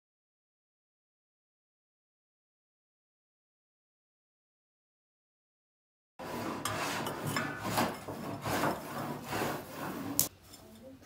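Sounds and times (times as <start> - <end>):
steel scraping on rusty steel: 6.2 - 10.9.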